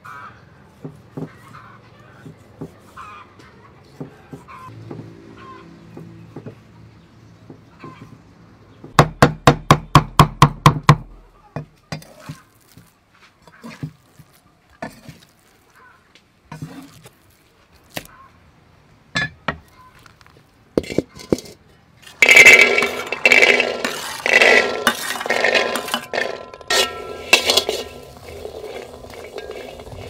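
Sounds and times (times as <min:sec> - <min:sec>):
peas pouring onto metal tray: 0:22.1 - 0:30.0.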